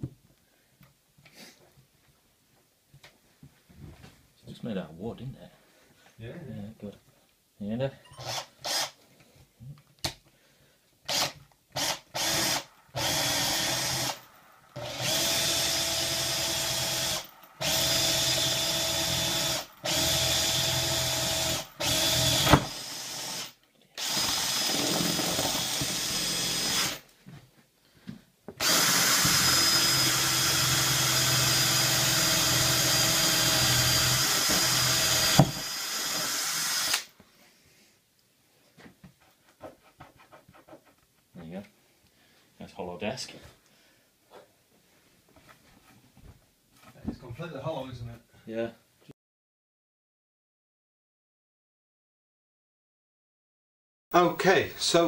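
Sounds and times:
cordless drill boring into wood: 0:08.2 - 0:09.0, 0:11.1 - 0:27.1, 0:28.6 - 0:37.1.

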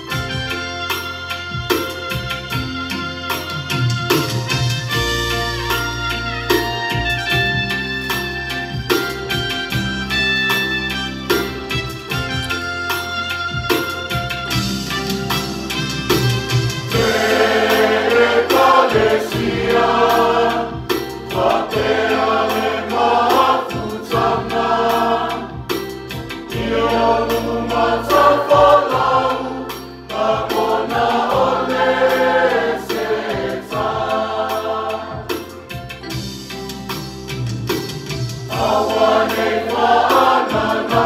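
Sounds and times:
mixed choir singing a hymn: 0:16.9 - 0:35.8, 0:38.5 - 0:41.0.

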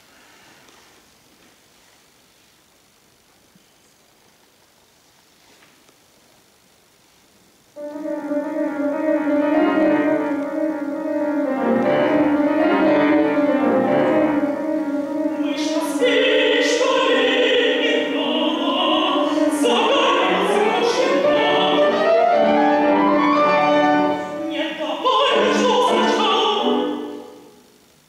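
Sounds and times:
piano chords: 0:07.8 - 0:27.7
woman singing: 0:15.3 - 0:22.6, 0:24.4 - 0:27.4.

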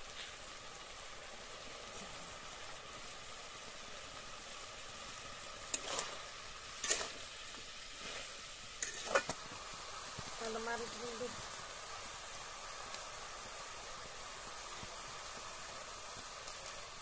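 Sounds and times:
curry sizzling in a pan: 0:00.0 - 0:17.0
metal spatula scraping pan: 0:05.7 - 0:07.3, 0:08.0 - 0:09.4.

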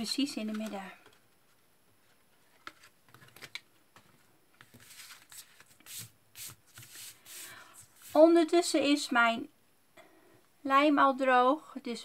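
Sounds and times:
card rustling and sliding: 0:02.4 - 0:08.2.

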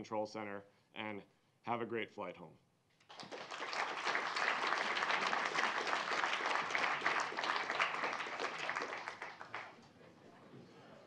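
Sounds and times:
audience applauding: 0:03.0 - 0:09.8.

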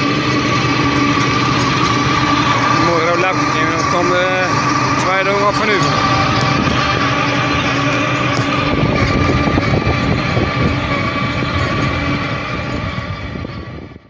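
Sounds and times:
high mechanical whine: 0:00.0 - 0:14.0
tractor engine under load: 0:00.0 - 0:14.0.

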